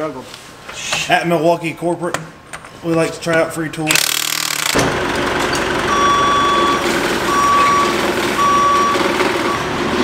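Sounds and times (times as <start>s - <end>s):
forklift engine running: 4.1s - 10.0s
forklift backup alarm beeping: 5.6s - 9.8s.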